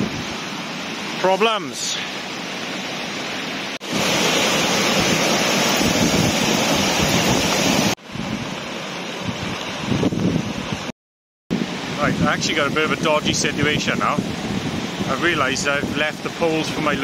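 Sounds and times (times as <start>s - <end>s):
river rushing over rapids: 0.0s - 10.9s, 11.6s - 17.0s
wind buffeting microphone: 3.9s - 10.9s, 11.5s - 17.0s.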